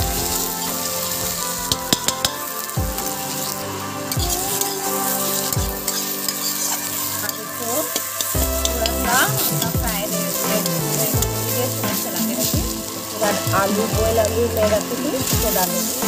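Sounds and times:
music: 0.0 - 16.0
paste sizzling in hot oil: 0.0 - 16.0.

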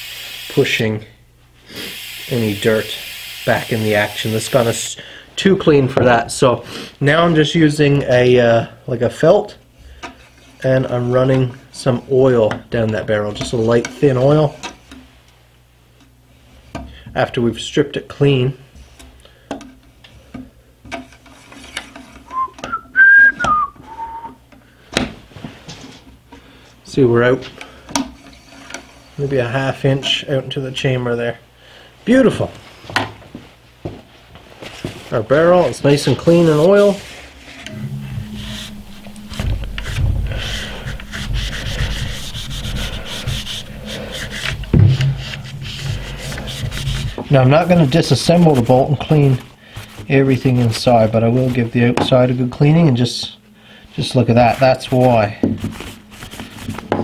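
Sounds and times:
person whistling notes: 22.3 - 24.4, 37.7 - 43.6
sharp knock: 44.3 - 46.1
dull knock: 44.6 - 45.4.

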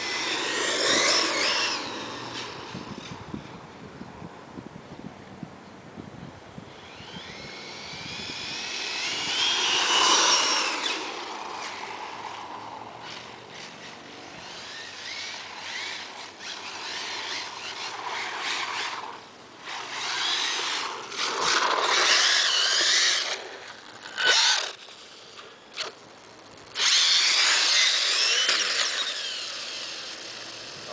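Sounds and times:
rc car motor whining: 0.0 - 3.6, 6.7 - 30.9.

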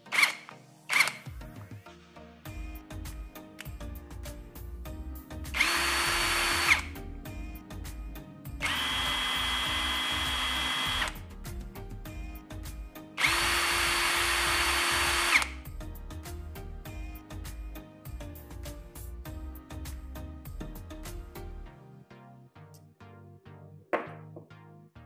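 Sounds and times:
background music: 0.0 - 25.0
impact wrench motor whine: 0.1 - 1.2, 5.6 - 6.9, 8.6 - 11.2, 13.2 - 15.6.

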